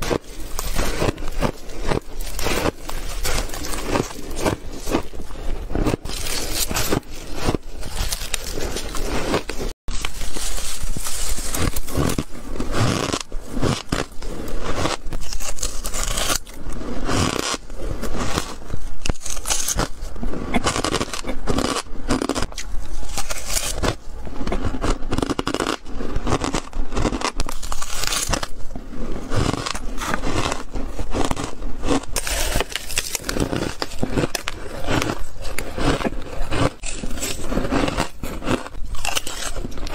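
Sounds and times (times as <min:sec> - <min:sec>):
shaved ice crunching: 0:00.0 - 0:20.0, 0:20.6 - 0:24.0, 0:24.6 - 0:39.9.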